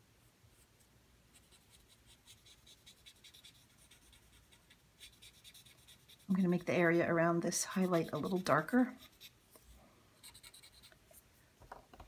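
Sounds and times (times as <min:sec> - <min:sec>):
blending stump rubbing on paper: 0:01.4 - 0:06.9, 0:07.5 - 0:09.4.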